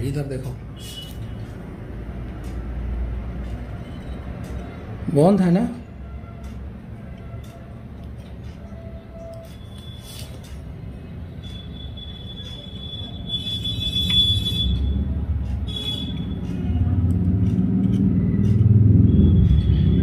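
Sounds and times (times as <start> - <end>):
high steady tone: 10.8 - 17.1.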